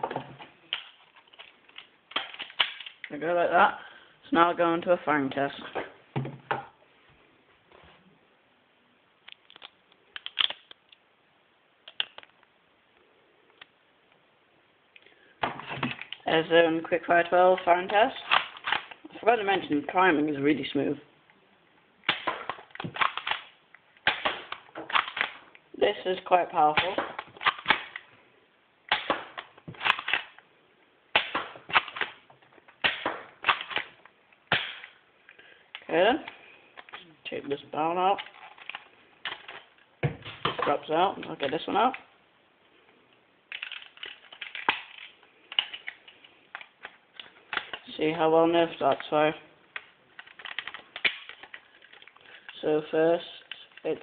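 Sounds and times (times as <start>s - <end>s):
plastic toy and camera clicks: 43.5s - 47.8s.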